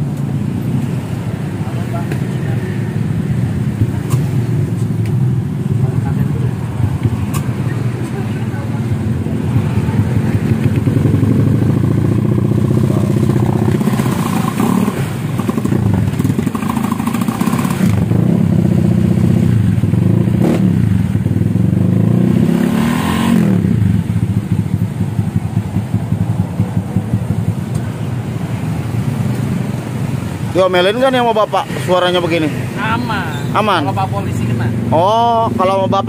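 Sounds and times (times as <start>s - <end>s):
scooter engine revving: 9.0s - 29.3s.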